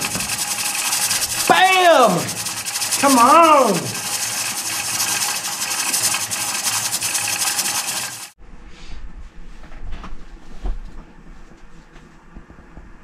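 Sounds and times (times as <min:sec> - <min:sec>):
regulator weight rattling: 0:00.0 - 0:08.3
pressure canner steam hissing: 0:00.0 - 0:08.4.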